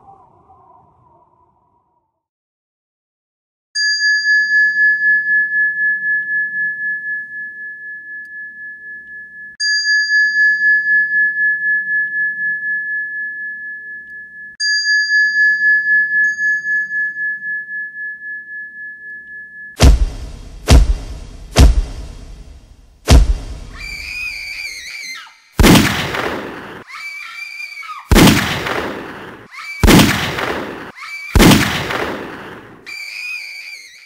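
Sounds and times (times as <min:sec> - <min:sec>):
high bell-like chime: 0:03.8 - 0:19.8.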